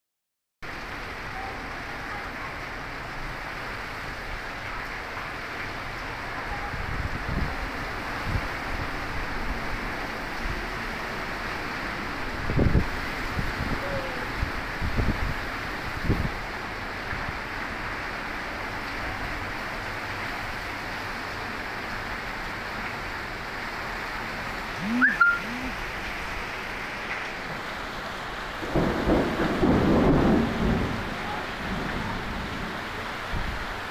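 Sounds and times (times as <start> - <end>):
heavy rain falling: 0.6 - 33.9
rising and falling pitched sound: 24.8 - 25.8.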